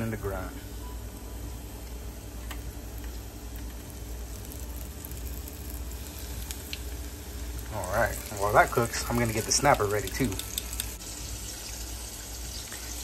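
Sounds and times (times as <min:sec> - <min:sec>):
fish frying in hot oil: 0:02.7 - 0:13.0.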